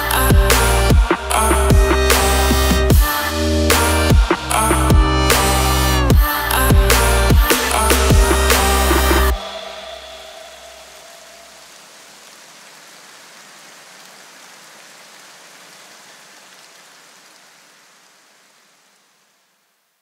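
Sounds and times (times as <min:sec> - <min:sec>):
low bass notes: 0:00.0 - 0:10.3
steady hiss noise: 0:00.0 - 0:20.0.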